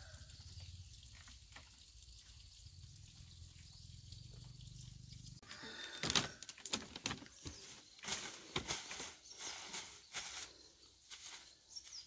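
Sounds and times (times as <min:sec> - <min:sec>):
plastic bag crinkling: 0:05.9 - 0:10.4.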